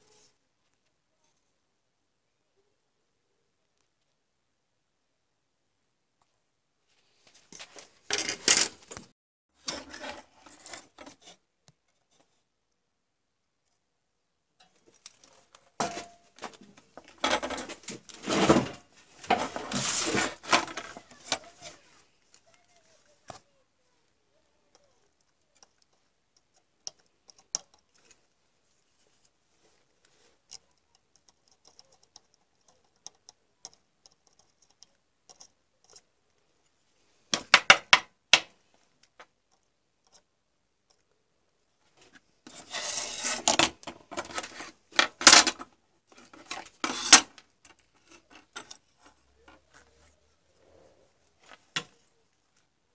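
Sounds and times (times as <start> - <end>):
small hard objects clattering: 14.6 - 22.4
circuit board scraping on wood: 42.5 - 44.8, 46.2 - 47.4.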